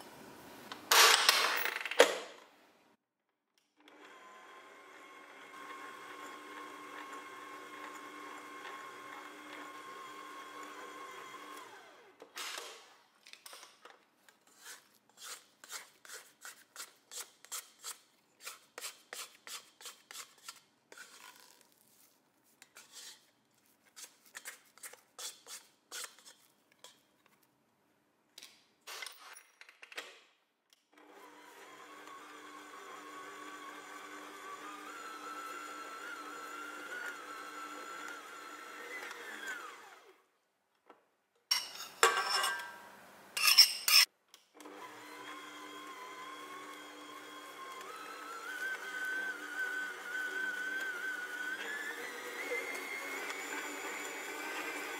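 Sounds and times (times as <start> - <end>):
kitchen mixer motor humming: 3.8 - 12.1, 31.0 - 40.1, 44.6 - 54.9.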